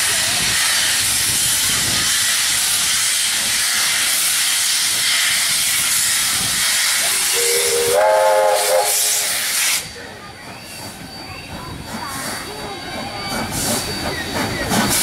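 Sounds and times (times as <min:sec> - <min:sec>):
steam hissing from locomotive: 0:00.0 - 0:15.0
steam whistle: 0:07.1 - 0:09.8.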